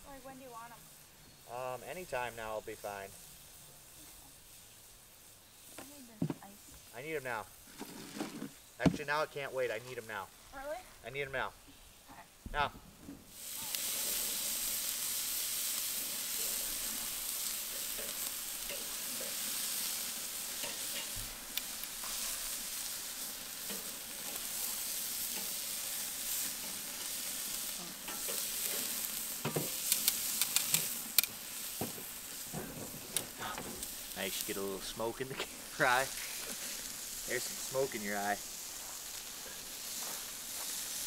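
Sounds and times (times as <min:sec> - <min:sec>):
meat sizzling on grill: 0:00.0 - 0:41.0
metal tongs clicking on grate: 0:28.1 - 0:28.8, 0:29.4 - 0:31.4.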